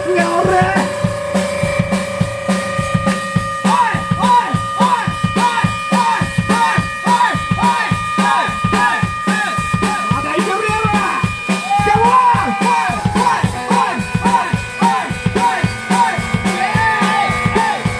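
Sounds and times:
electric guitar high figure: 0.0 - 17.9
live rock band playing: 0.0 - 17.9
person shouting singing: 3.6 - 17.9.

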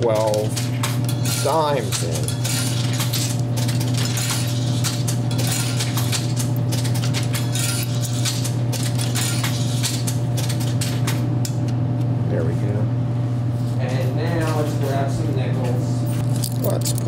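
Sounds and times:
coins clinking in slot: 0.0 - 11.2, 16.2 - 17.0.

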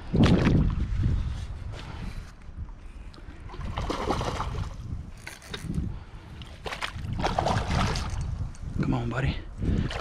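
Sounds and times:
wind rumbling on microphone: 0.0 - 10.0
river water splashing: 3.5 - 5.5, 6.5 - 8.2.

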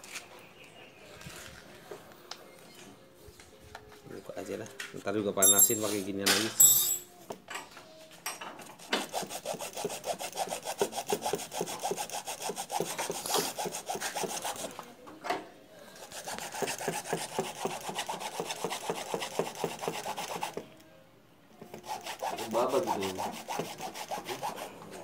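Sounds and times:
hand saw cutting plastic: 8.8 - 14.7, 16.0 - 20.6, 21.7 - 24.7.

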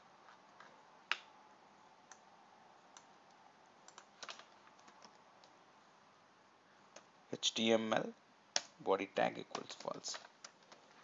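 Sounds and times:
computer mouse clicks: 2.9 - 5.6.

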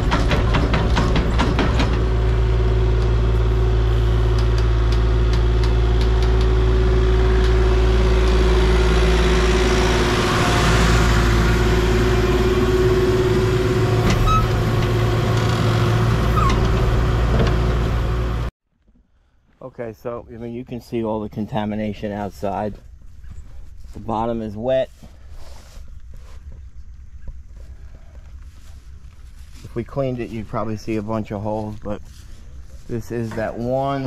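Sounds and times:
heavy machine engine running: 0.0 - 18.5
low hum: 0.0 - 18.5.

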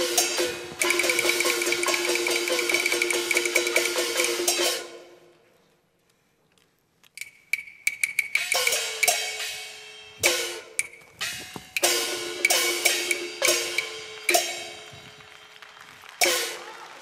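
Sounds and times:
gongs cymbals and clappers beating: 0.0 - 5.2, 7.2 - 17.0.

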